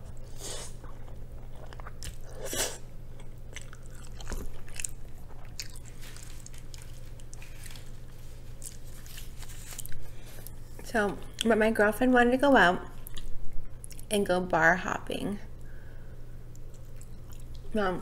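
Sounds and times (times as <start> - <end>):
wet chewing: 0.1 - 11.5, 16.5 - 17.7.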